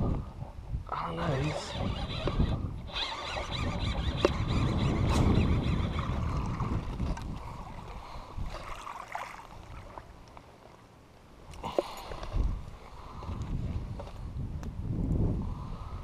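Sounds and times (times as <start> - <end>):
low rumbling on microphone: 0.0 - 2.9, 3.6 - 8.7, 12.2 - 16.0.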